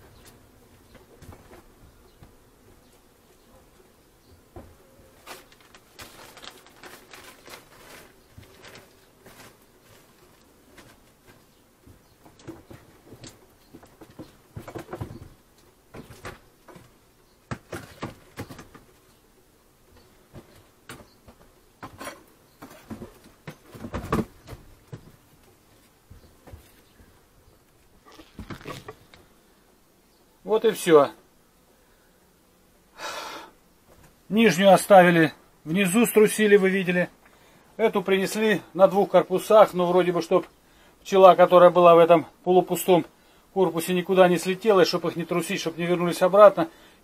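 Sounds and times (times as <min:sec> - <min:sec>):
wooden beehive boxes knocking: 0:10.6 - 0:19.0, 0:20.0 - 0:25.3, 0:28.1 - 0:29.2.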